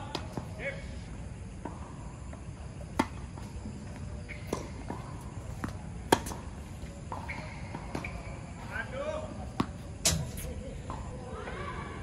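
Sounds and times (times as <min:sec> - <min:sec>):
tennis ball bouncing: 0:03.0 - 0:03.5, 0:04.2 - 0:08.3, 0:09.4 - 0:11.2
rackets hitting tennis ball: 0:04.2 - 0:11.2.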